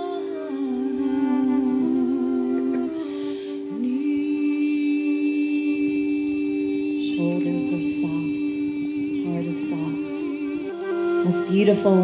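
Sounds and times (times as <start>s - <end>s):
held sung or hummed vocal tones: 0.0s - 12.0s
steady high tone: 0.0s - 12.0s.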